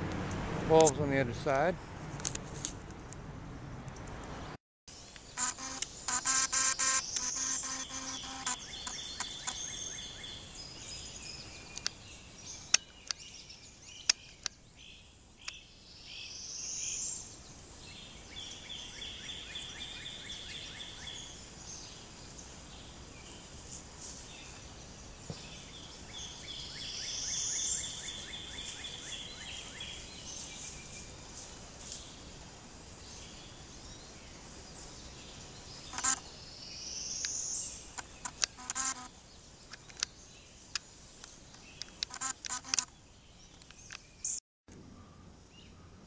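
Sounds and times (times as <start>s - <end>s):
rising whine and pulsing buzz call: 5.4s - 9.6s.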